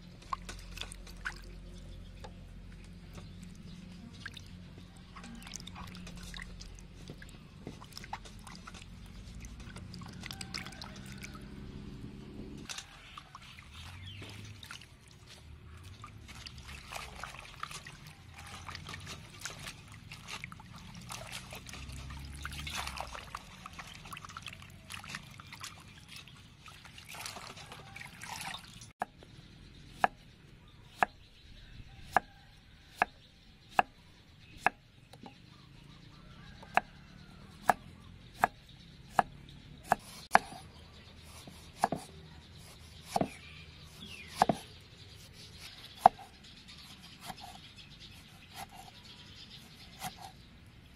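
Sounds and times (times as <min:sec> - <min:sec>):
water trickling and dripping: 0:00.0 - 0:11.5, 0:12.6 - 0:28.9
hands splashing lettuce in water: 0:12.6 - 0:28.9.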